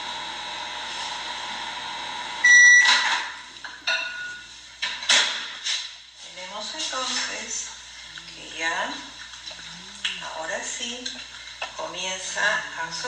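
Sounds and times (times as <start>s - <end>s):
microwave oven humming: 0.0s - 5.1s
microwave beep: 2.2s - 3.4s.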